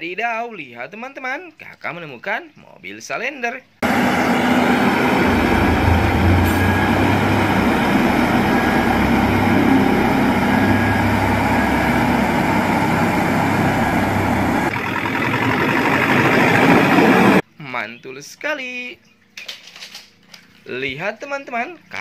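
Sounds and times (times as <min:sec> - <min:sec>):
low hum: 0:03.8 - 0:17.4
road roller diesel engine running: 0:03.8 - 0:17.4.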